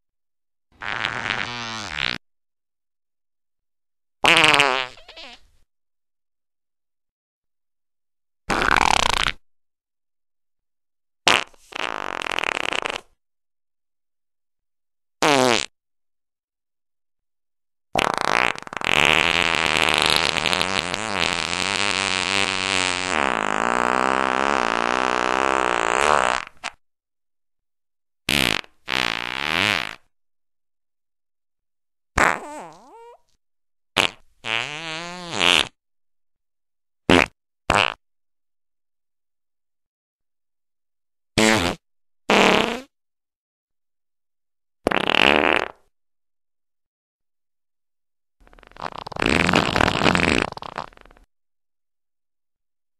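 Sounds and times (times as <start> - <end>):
farts: 0.8 - 2.2, 4.2 - 5.5, 8.5 - 9.4, 11.3 - 13.2, 15.2 - 15.7, 18.0 - 26.8, 28.3 - 30.1, 32.2 - 33.4, 34.0 - 35.8, 37.1 - 38.0, 41.4 - 43.0, 44.8 - 45.9, 48.4 - 51.3.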